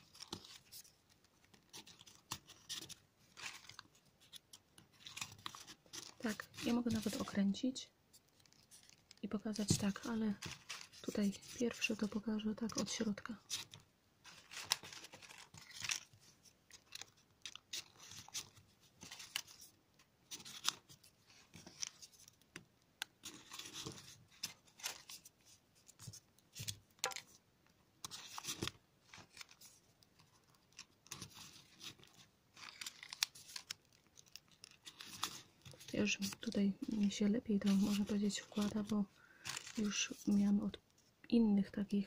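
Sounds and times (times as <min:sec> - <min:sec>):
paper rustling and crinkling: 0:00.0 - 0:27.4, 0:28.0 - 0:41.2.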